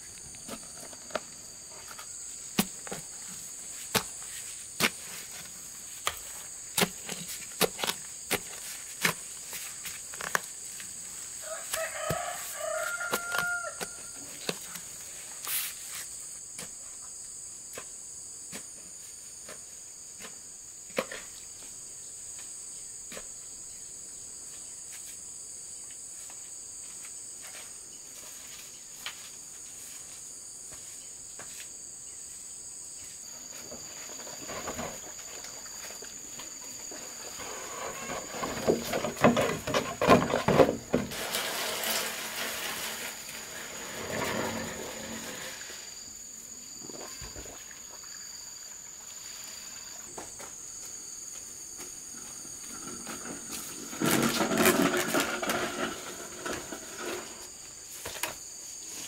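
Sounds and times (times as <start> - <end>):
high insect drone: 0.0 - 59.0
rooster crowing: 11.4 - 14.2.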